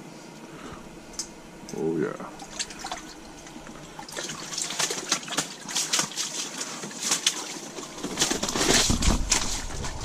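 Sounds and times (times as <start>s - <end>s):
wet slush clicks and splashes on ice: 4.2s - 9.5s.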